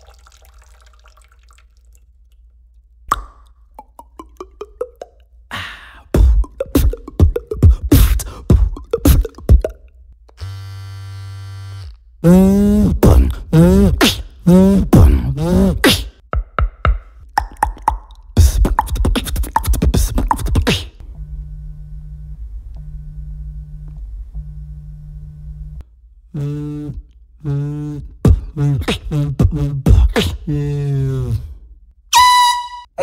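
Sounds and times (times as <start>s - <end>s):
person beatboxing buzzing sounds: 3.8s - 5.1s, 6.0s - 9.8s, 12.2s - 21.0s, 26.3s - 31.6s
cell phone vibrating: 10.4s - 15.8s, 26.3s - 28.6s.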